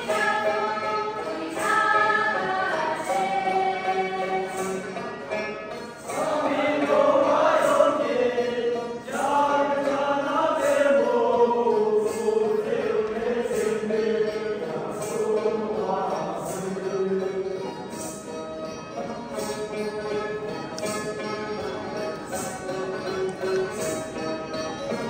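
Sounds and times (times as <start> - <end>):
group of young voices singing: 0.0 - 5.1, 6.0 - 18.2
plucked lutes: 0.0 - 25.0.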